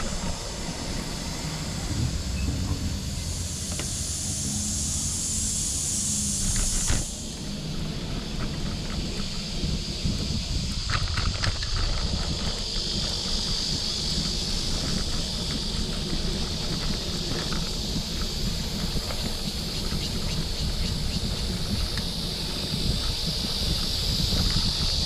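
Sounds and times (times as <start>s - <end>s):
high-pitched insect chorus: 0.0s - 25.0s
wind buffeting microphone: 0.0s - 25.0s
light rattling ticks: 10.2s - 25.0s.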